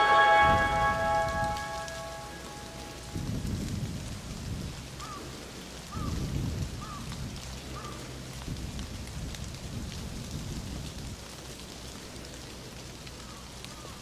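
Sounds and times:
short high chirps: 0:00.0 - 0:02.8
creek water trickling over rocks: 0:01.6 - 0:14.0.

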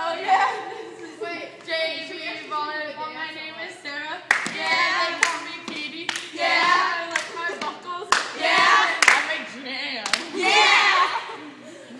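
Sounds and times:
girls singing: 0:00.0 - 0:11.9
sharp hand claps: 0:04.3 - 0:06.3, 0:09.0 - 0:09.3.

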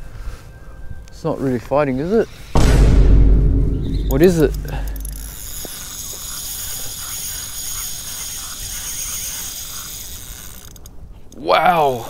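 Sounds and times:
fishing reel ratcheting whirr: 0:05.0 - 0:10.9.

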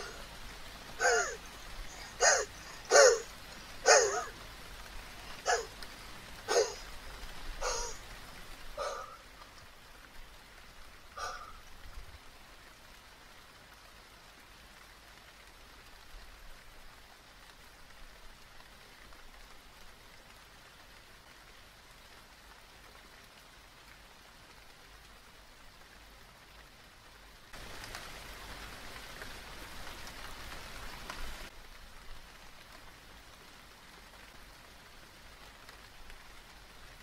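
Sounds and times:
steady rain falling: 0:00.0 - 0:37.0
dog barking: 0:01.0 - 0:04.3, 0:05.4 - 0:05.7, 0:06.5 - 0:06.8, 0:07.6 - 0:08.0, 0:08.8 - 0:09.2, 0:11.2 - 0:11.5.

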